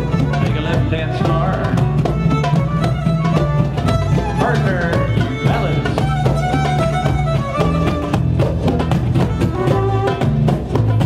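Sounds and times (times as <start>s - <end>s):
fiddle melody: 0.0s - 11.0s
hand drums beating: 0.0s - 11.0s
plucked mandolin: 0.0s - 11.0s
strummed guitar: 0.0s - 11.0s.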